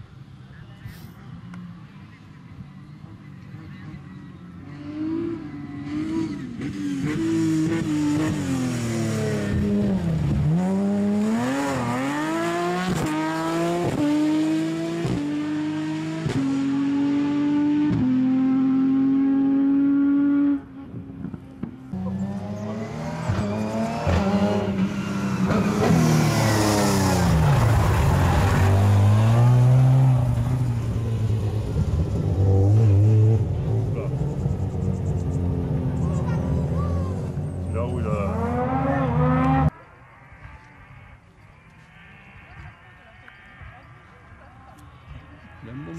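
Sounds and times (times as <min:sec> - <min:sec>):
engine revving through gears: 0:21.9 - 0:30.8, 0:36.6 - 0:39.8.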